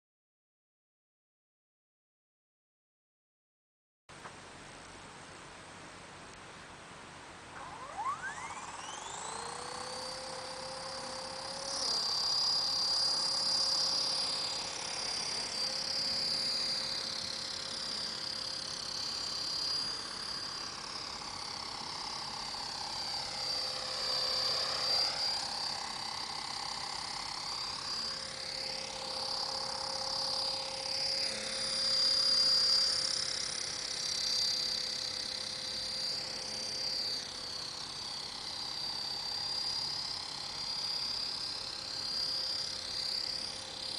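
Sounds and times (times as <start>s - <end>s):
rc helicopter rotor whine: 7.3s - 43.9s.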